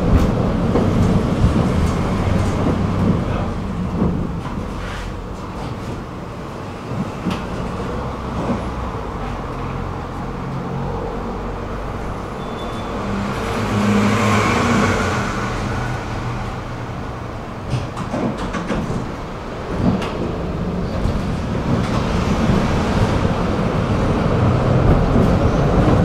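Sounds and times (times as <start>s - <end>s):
wheels rumbling on rails: 0.0s - 26.0s.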